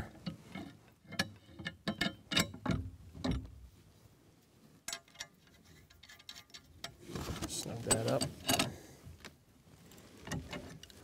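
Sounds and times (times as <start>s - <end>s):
light metal clicks and knocks: 0.0s - 3.6s, 4.8s - 7.0s, 7.8s - 8.8s.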